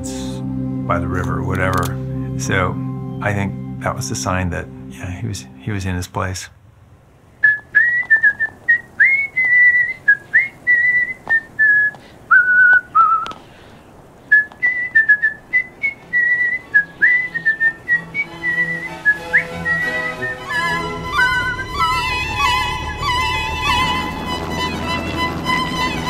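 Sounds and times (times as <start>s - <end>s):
soft music: 0.0s - 6.1s, 16.1s - 26.0s
person whistling a melody: 7.4s - 13.3s, 14.3s - 24.5s.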